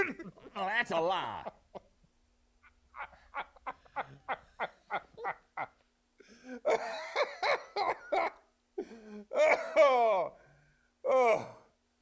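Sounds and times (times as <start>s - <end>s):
man laughing: 2.6s - 5.8s, 6.5s - 8.4s.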